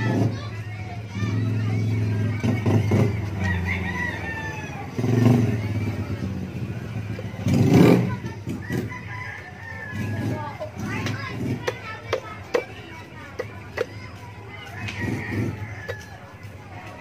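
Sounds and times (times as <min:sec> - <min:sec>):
faint voices: 0:00.0 - 0:17.0
rooster crowing: 0:03.4 - 0:05.2, 0:08.6 - 0:10.5, 0:14.6 - 0:16.4.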